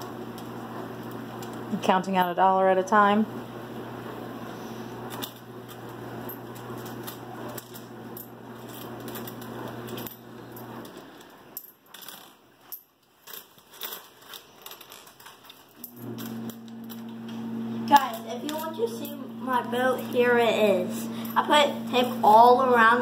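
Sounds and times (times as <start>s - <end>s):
steady background hum: 0.0s - 23.0s
coins clinking: 5.1s - 23.0s.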